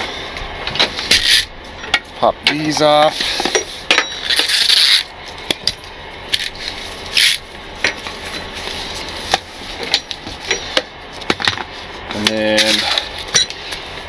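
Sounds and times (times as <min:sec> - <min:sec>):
nylon strap rubbing and swishing: 0:06.4 - 0:07.5.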